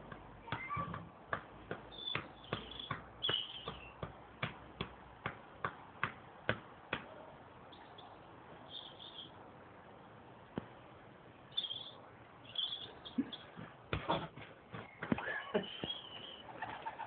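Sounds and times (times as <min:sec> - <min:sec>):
football being juggled: 0:00.1 - 0:07.1.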